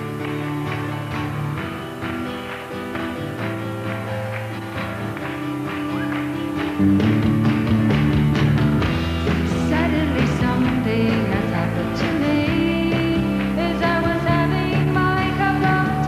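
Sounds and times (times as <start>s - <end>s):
live rock band: 0.0s - 16.0s
strummed guitar: 0.0s - 16.0s
woman singing lead vocal: 9.5s - 16.0s.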